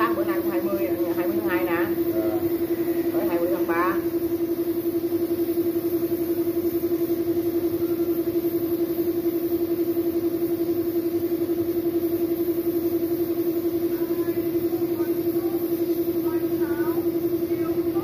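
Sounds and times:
spray gun hissing: 0.0 - 7.4, 12.1 - 18.0
air compressor humming: 0.0 - 18.0.

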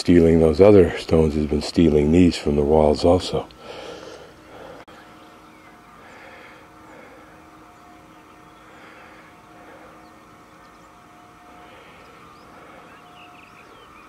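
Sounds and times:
distant engines humming: 0.0 - 14.0
faint high chirps: 4.4 - 14.0.

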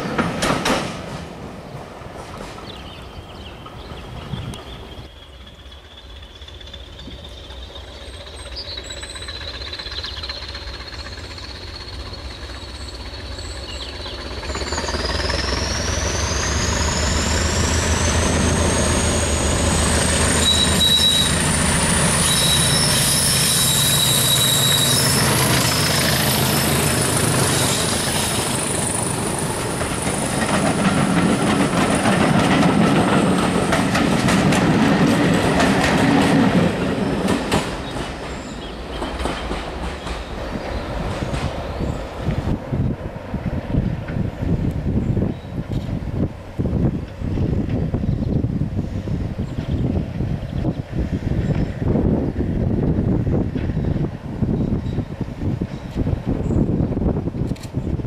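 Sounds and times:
coaches clicking over rail joints: 0.0 - 48.4
diesel locomotive engine rumble: 0.0 - 58.0
wheels squealing: 3.8 - 34.6
high whistle climbing in pitch: 15.6 - 25.9.

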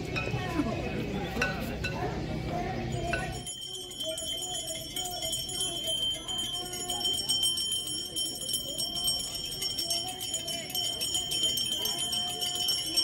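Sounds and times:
hand bells ringing rapidly: 2.8 - 13.0
wavering devotional melody: 2.8 - 13.0.

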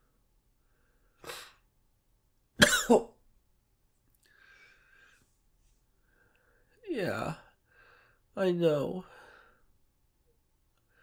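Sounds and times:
man coughing: 2.6 - 3.2.

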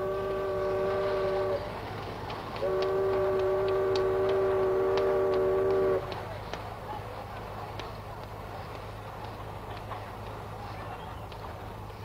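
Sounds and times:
steamship horn blasts: 0.0 - 1.9, 2.6 - 6.2.

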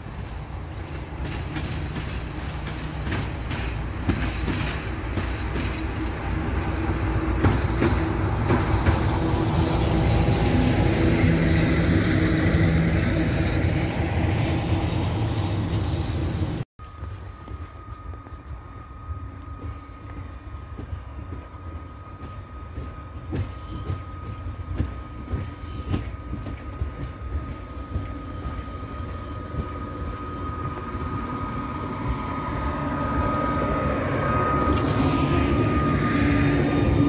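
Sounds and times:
locomotive passing with low hum: 0.0 - 37.0
wheels clicking over rail joints: 0.5 - 10.3.

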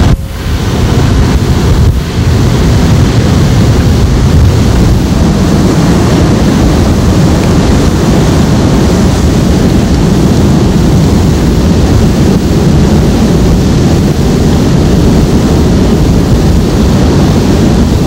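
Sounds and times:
heavy surf breaking: 0.0 - 18.0
wind buffeting microphone: 0.0 - 18.0.

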